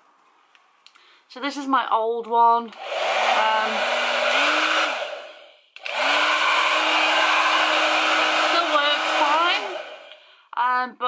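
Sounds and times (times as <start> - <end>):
hair dryer blowing: 2.7 - 10.2.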